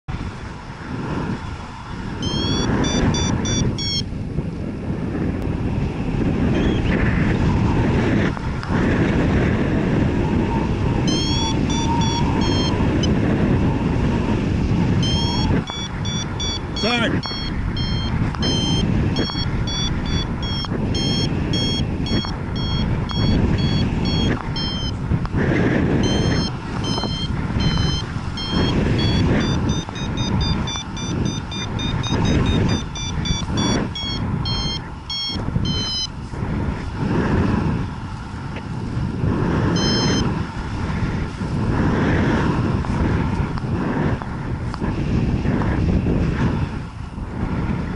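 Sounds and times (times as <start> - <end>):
wind rushing on microphone: 0.0 - 47.9
variometer beeping: 2.2 - 4.1, 11.0 - 13.2, 15.0 - 25.0, 26.0 - 36.2, 39.7 - 40.3.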